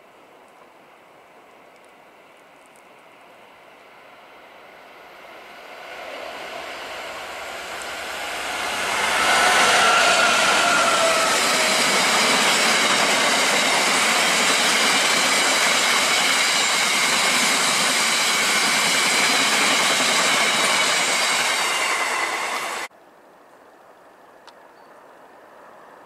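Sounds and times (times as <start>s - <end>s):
diesel locomotive passing: 3.4s - 22.9s
high ringing of rails: 3.5s - 22.9s
wagon wheels rushing on rails: 5.2s - 22.9s.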